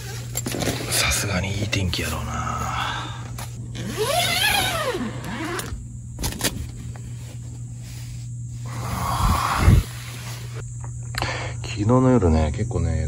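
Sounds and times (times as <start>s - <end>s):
tent zipper pulled open: 3.7s - 6.4s, 8.6s - 10.6s.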